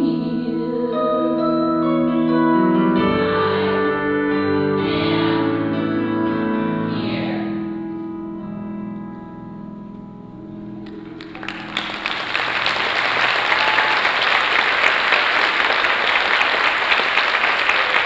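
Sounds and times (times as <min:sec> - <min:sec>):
audience applause: 0:10.9 - 0:18.0.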